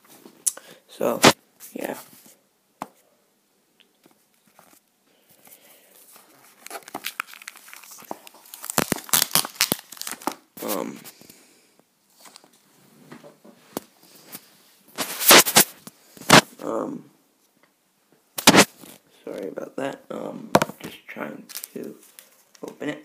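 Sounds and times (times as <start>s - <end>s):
packaging being torn and crinkled: 6.4s - 10.5s, 18.4s - 19.0s, 21.5s - 22.7s.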